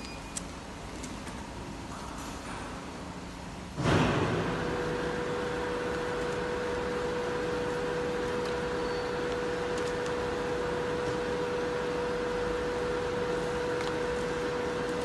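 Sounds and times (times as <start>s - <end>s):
packaging machine humming: 3.7s - 15.0s.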